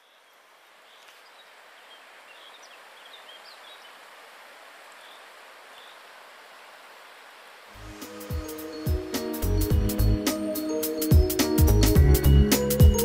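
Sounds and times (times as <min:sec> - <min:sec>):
faint bird chirps: 0:00.0 - 0:04.0.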